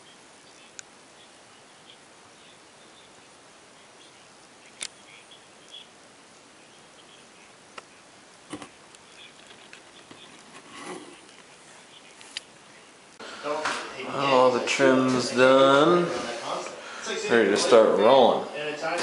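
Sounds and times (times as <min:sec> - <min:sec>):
sharp clicks: 0:04.7 - 0:05.0
brief rustle: 0:08.5 - 0:12.5.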